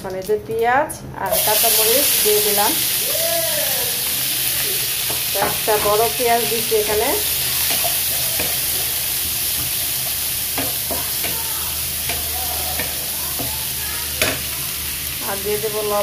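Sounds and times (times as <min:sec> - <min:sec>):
onions sizzling in oil: 0:01.3 - 0:16.0
utensil knocking on pan: 0:05.1 - 0:08.6, 0:10.5 - 0:13.6.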